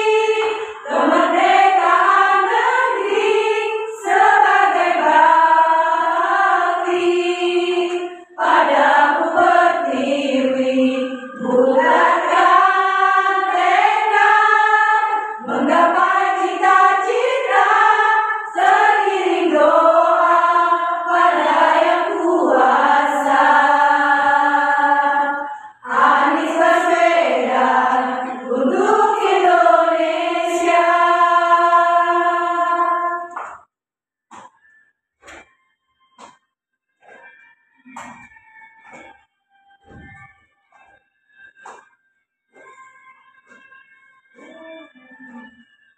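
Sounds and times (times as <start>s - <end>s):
women's choir singing: 0.0s - 33.7s.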